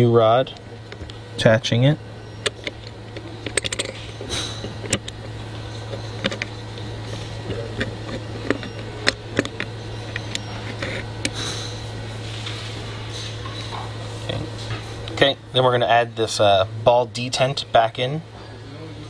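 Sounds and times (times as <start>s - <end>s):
steady low hum: 0.0s - 19.0s
small metal parts clicking: 2.4s - 4.1s.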